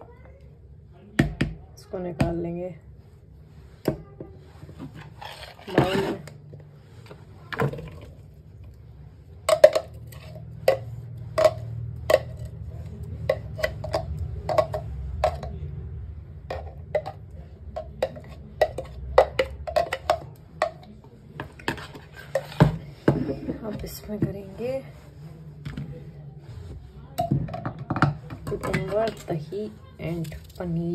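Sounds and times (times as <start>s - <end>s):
metal spoon scraping container: 4.9s - 6.4s, 9.5s - 15.5s, 21.6s - 24.1s.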